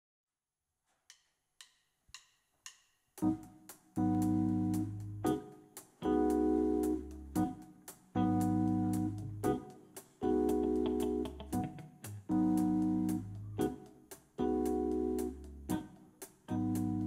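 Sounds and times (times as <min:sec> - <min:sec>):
keyboard chords: 0:03.2 - 0:17.0
strong bass: 0:04.0 - 0:05.4, 0:06.2 - 0:07.5, 0:08.2 - 0:09.6, 0:10.5 - 0:13.7.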